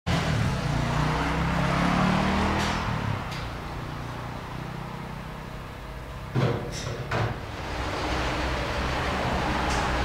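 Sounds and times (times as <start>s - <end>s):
car engine revving and idling: 0.1s - 6.3s.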